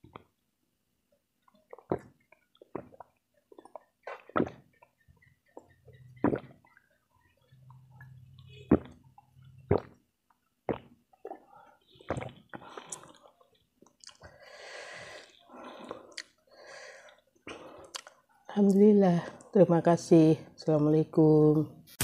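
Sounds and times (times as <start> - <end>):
person gulping and swallowing: 1.4 - 6.9, 7.6 - 10.0, 10.6 - 14.4, 17.5 - 18.2.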